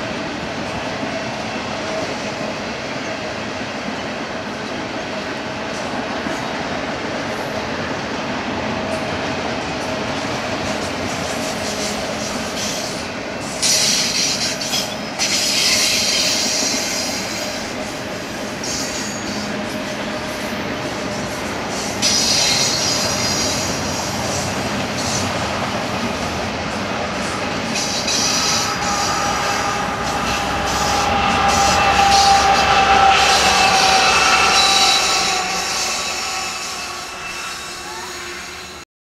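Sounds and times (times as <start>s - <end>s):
freight train rumbling and rattling: 0.0s - 38.8s
high-pitched wheel squeal: 18.6s - 19.6s, 21.7s - 25.4s, 27.4s - 38.8s.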